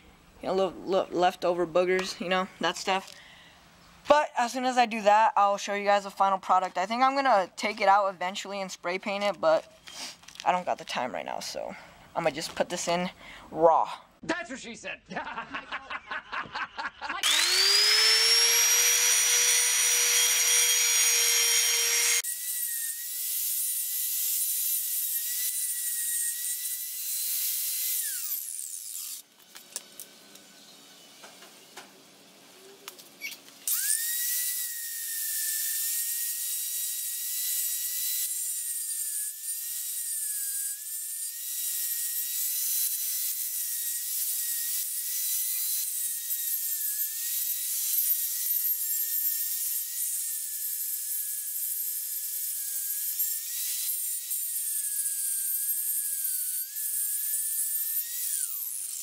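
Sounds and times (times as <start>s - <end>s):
angle grinder whining: 17.2s - 59.0s.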